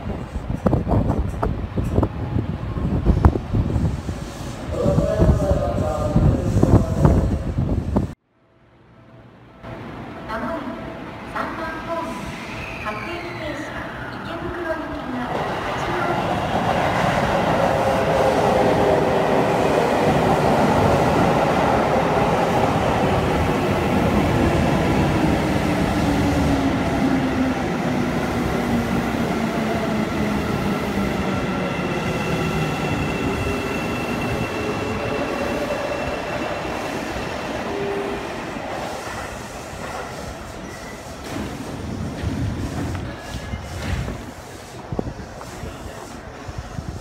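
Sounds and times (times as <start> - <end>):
high brake squeal: 12.2 - 13.8, 32.6 - 36.7, 40.6 - 41.2
electric train braking: 31.4 - 39.8.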